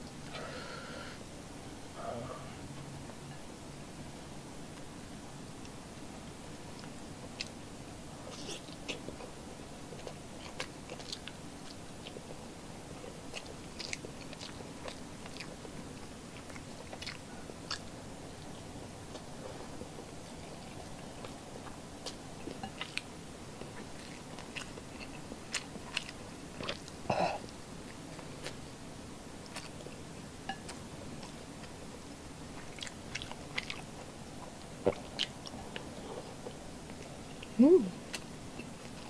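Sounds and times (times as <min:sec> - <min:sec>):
close-up chewing: 0:08.3 - 0:28.7, 0:29.4 - 0:39.0.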